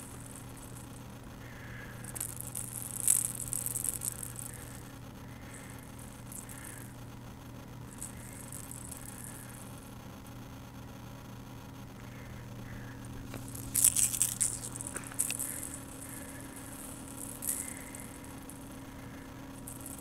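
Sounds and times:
toy ball rattling and scuffling: 0.0s - 1.1s, 1.8s - 7.0s, 7.9s - 9.7s, 13.1s - 20.0s.

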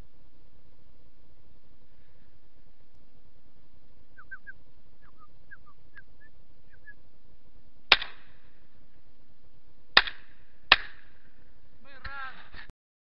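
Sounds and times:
bird chirps: 4.1s - 7.0s
shotgun shot: 7.9s - 8.4s, 10.0s - 11.2s.

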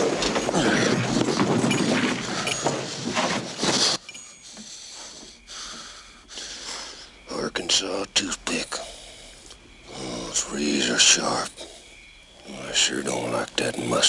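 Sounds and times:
scuffle with knocks: 0.0s - 5.9s
rustling: 0.0s - 7.0s
faint breathing: 0.4s - 7.3s, 8.6s - 12.6s.

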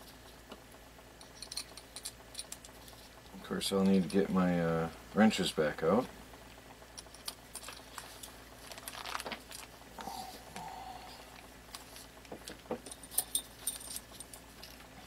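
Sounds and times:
metal hardware clinking: 1.2s - 2.7s, 12.8s - 14.9s.

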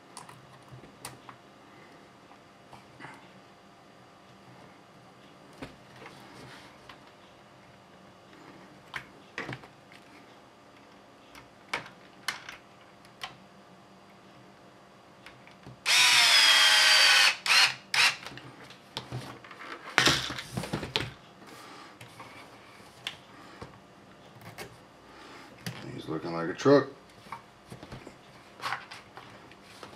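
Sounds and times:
cordless drill motor whine: 15.8s - 18.3s.

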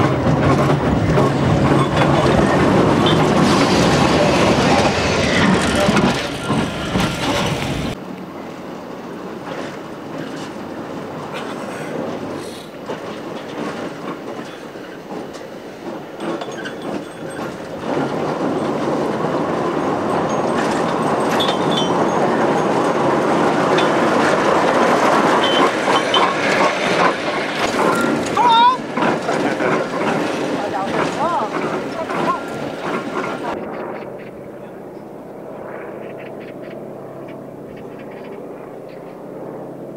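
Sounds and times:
wheels clattering over track: 0.0s - 8.0s, 9.4s - 33.6s
electric locomotive running on rails: 0.0s - 39.9s
short high wheel squeals: 25.4s - 26.3s.

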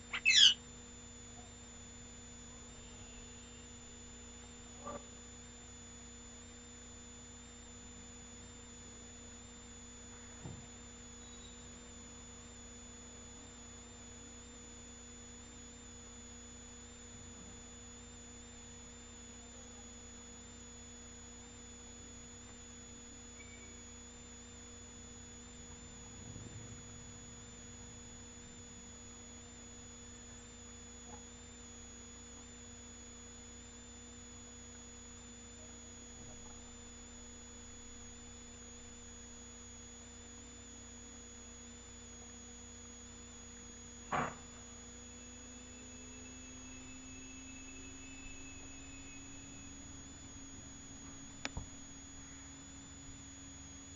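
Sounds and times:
high whine: 0.0s - 5.0s, 44.0s - 53.9s
low electrical hum: 0.0s - 53.9s.

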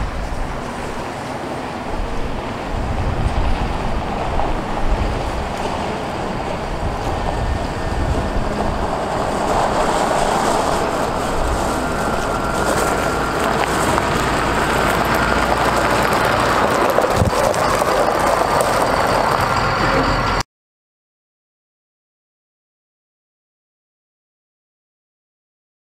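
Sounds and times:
diesel truck driving past: 0.0s - 20.4s.

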